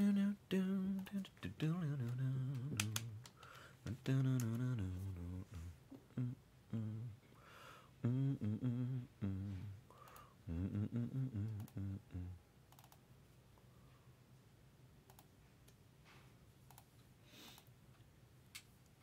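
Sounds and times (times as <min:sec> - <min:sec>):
faint keyboard clicks: 0:10.0 - 0:10.3, 0:12.7 - 0:13.0, 0:15.1 - 0:15.8, 0:16.7 - 0:17.7.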